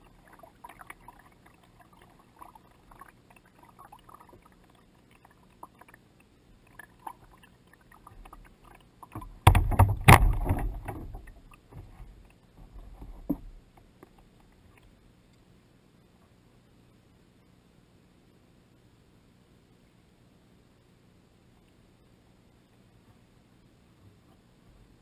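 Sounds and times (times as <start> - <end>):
water splashing against kayak hull: 0.0 - 6.0, 6.6 - 14.2
water lapping: 0.0 - 14.9.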